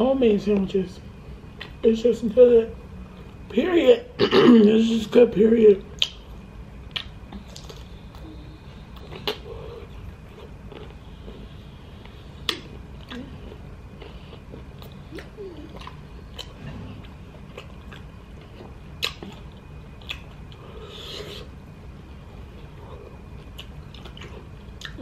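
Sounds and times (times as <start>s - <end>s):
person chewing with wet smacks: 1.6s - 1.8s, 5.9s - 25.0s.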